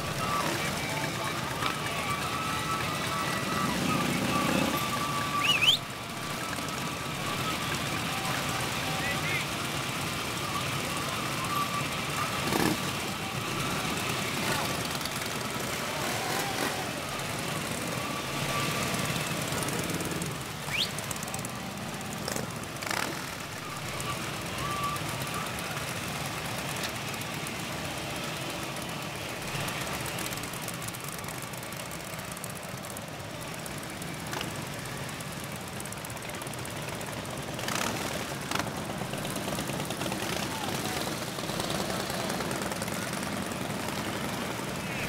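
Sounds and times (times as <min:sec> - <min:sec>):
motorcycle engines idling: 0:00.0 - 0:45.0.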